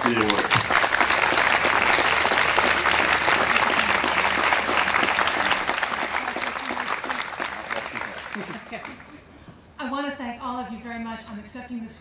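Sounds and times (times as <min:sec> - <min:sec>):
audience applauding: 0:00.0 - 0:09.2.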